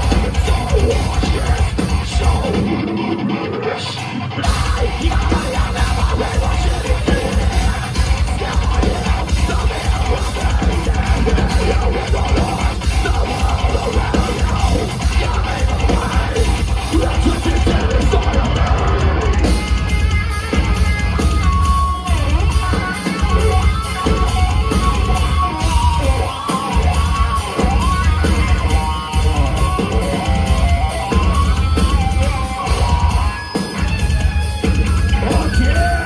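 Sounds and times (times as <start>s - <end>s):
pounding drums: 0.0s - 3.2s, 4.3s - 36.0s
heavy distorted guitars: 0.0s - 36.0s
screamed vocals: 35.1s - 36.0s.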